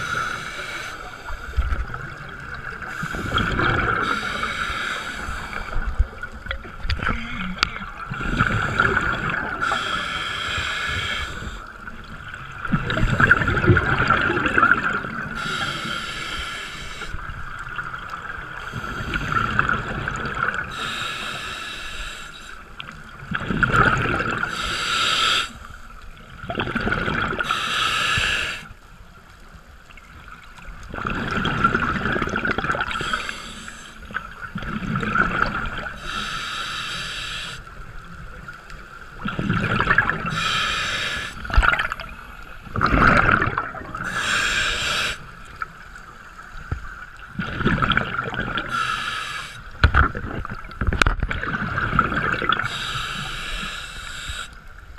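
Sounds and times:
regulator hissing inhale: 0:00.0 - 0:01.6, 0:02.8 - 0:05.8, 0:08.5 - 0:11.8, 0:15.4 - 0:17.2, 0:20.6 - 0:22.7, 0:24.5 - 0:25.9, 0:27.4 - 0:28.7, 0:32.9 - 0:34.2, 0:36.0 - 0:37.8, 0:40.2 - 0:42.0, 0:44.0 - 0:46.4, 0:48.6 - 0:49.9, 0:52.6 - 0:54.8
gurgling exhaled bubbles: 0:00.0 - 0:10.0, 0:11.0 - 0:16.0, 0:17.2 - 0:20.9, 0:22.8 - 0:24.8, 0:26.2 - 0:27.6, 0:30.7 - 0:36.2, 0:39.1 - 0:45.6, 0:47.1 - 0:49.1, 0:49.7 - 0:53.7.

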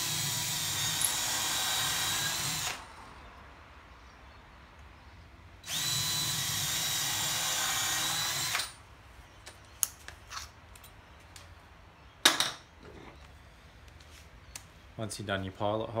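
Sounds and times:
cordless drill whining: 0:00.0 - 0:02.8, 0:05.6 - 0:08.8.

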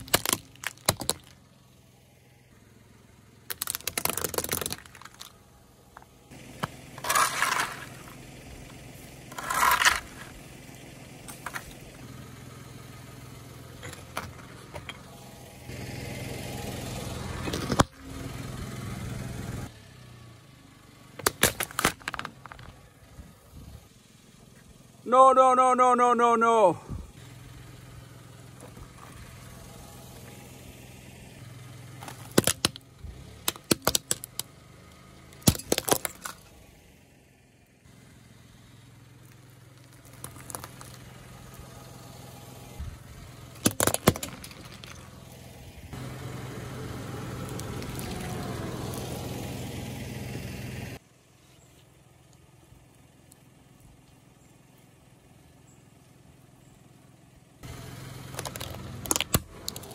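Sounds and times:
tyre crushing small hard objects: 0:00.0 - 0:01.4, 0:03.5 - 0:05.4, 0:06.0 - 0:10.4, 0:11.3 - 0:12.0, 0:21.2 - 0:22.8, 0:32.0 - 0:32.8, 0:33.4 - 0:34.5, 0:35.3 - 0:36.6, 0:39.2 - 0:41.7, 0:43.5 - 0:45.4, 0:47.4 - 0:49.3, 0:58.3 - 0:59.9
car idling: 0:00.0 - 0:59.9.

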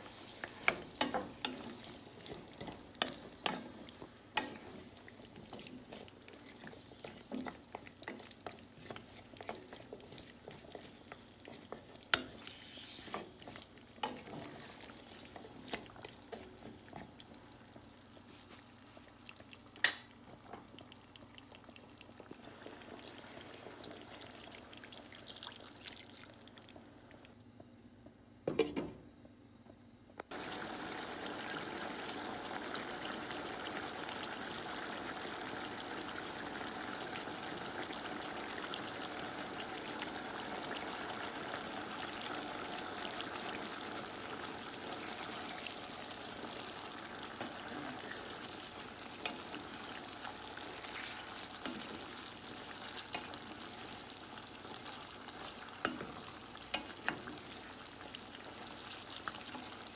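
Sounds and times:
food sizzling in frying pan: 0:00.0 - 0:27.0, 0:30.3 - 0:59.9
wooden spatula taps and scrapes: 0:00.4 - 0:14.6, 0:55.8 - 0:57.3.

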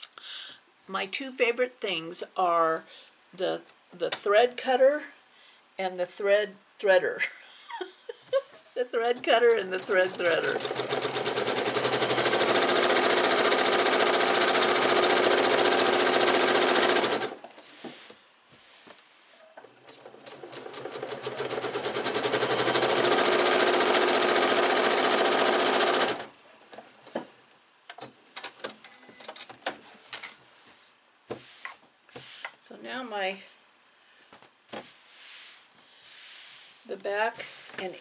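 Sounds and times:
sewing machine stitching: 0:09.0 - 0:17.4, 0:19.6 - 0:26.3.

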